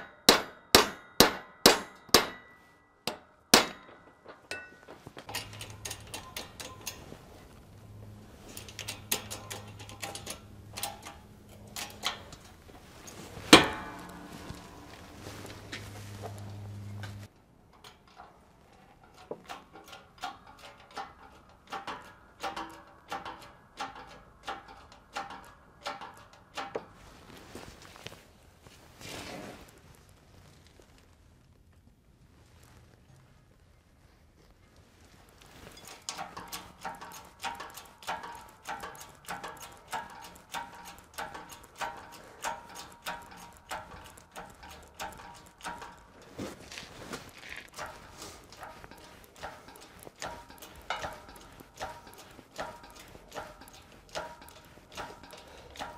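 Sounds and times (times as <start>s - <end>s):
hydraulic press clacking: 3.1s - 17.2s, 35.8s - 46.3s, 47.7s - 55.9s
low hum: 3.8s - 17.4s
hand pump metallic clicks: 4.5s - 27.0s, 35.6s - 55.9s.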